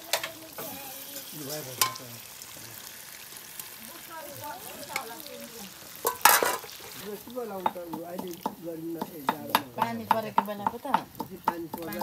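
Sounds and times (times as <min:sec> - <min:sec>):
voices talking: 0:03.7 - 0:12.0
ladle scraping metal pan: 0:06.0 - 0:07.2
ladle knocking against pan: 0:07.6 - 0:12.0.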